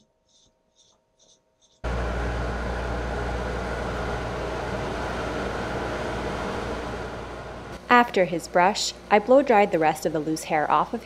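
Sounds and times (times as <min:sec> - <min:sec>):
blow dryer and vacuum running: 0:01.8 - 0:10.2.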